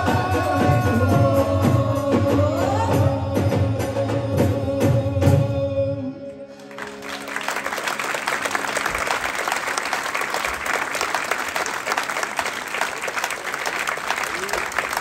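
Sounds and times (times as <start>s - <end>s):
folk music with drums: 0.0s - 9.0s
audience applause: 6.6s - 15.0s.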